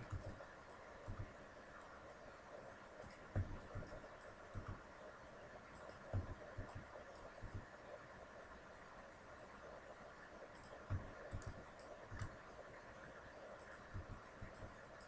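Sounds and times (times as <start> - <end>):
faint mouse and keyboard clicks: 0.0 - 2.0, 3.0 - 4.9, 5.7 - 7.7, 10.5 - 12.5, 13.4 - 15.0.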